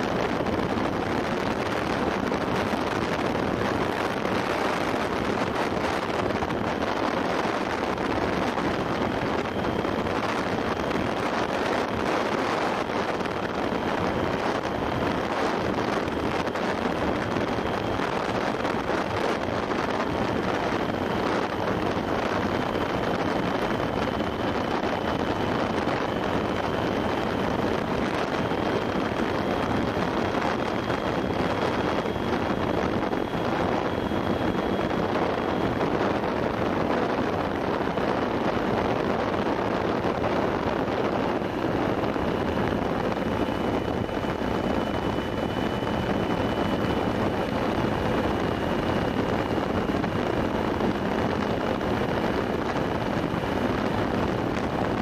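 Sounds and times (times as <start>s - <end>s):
faint high whine: 0.0s - 55.0s
wind rushing over microphone: 0.0s - 55.0s.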